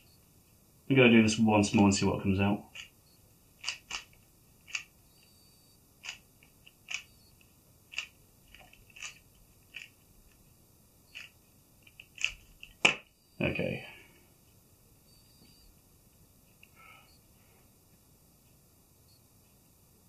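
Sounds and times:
plastic cube clicks: 3.6 - 4.9, 7.9 - 10.0, 11.1 - 13.1.

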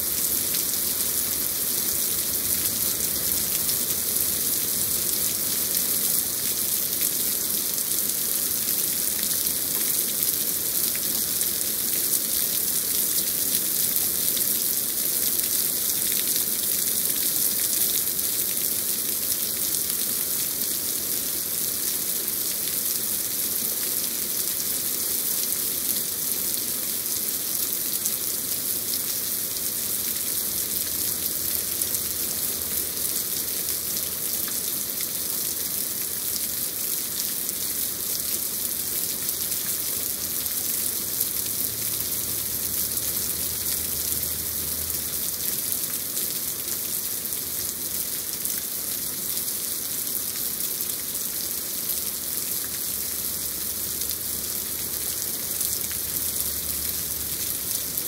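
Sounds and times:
heavy rain on leaves: 0.0 - 58.0.

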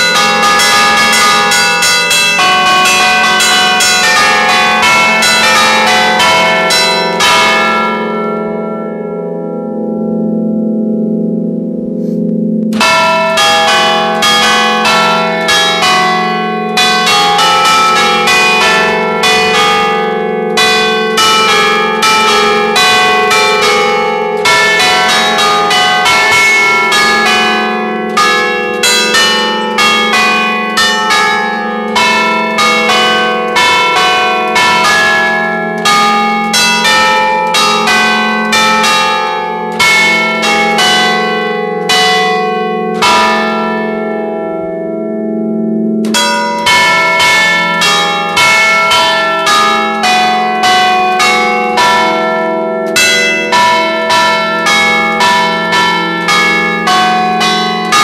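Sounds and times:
low bells humming: 0.0 - 39.0
church bells ringing: 0.0 - 58.0.

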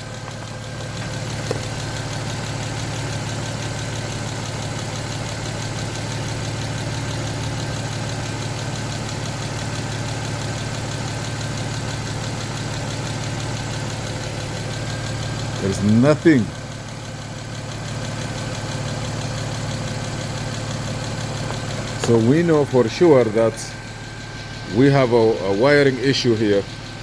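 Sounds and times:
car engine idling: 0.0 - 27.0.

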